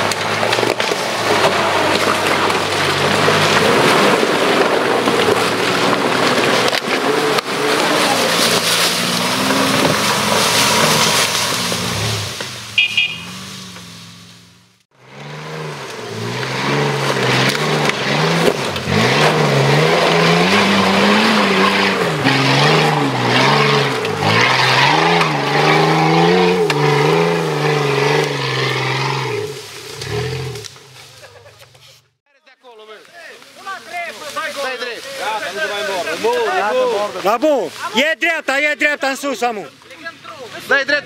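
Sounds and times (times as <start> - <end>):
off-road vehicle engine revving: 0.0 - 32.1.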